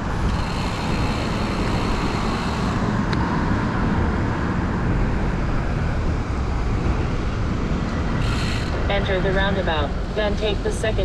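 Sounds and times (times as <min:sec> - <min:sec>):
road traffic noise: 0:00.0 - 0:11.0
rushing wind: 0:00.0 - 0:11.0.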